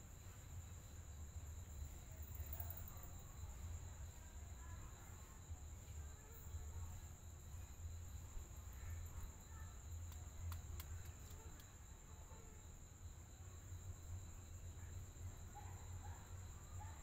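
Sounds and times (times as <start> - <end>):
light clicks: 10.0 - 11.8.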